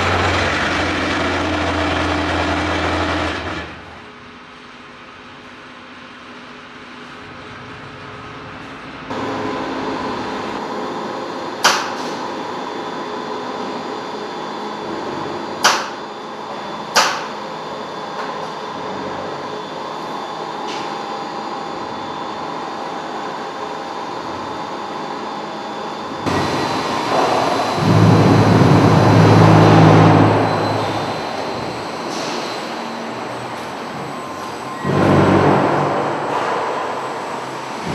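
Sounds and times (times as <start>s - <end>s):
concrete bucket running on track: 0.0s - 3.9s, 26.3s - 31.8s
low machine hum: 0.0s - 37.9s.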